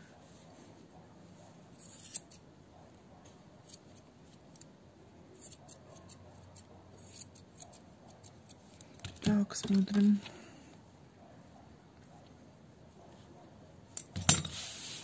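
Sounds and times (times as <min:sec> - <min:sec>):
scissors snipping fur: 0:05.4 - 0:09.0.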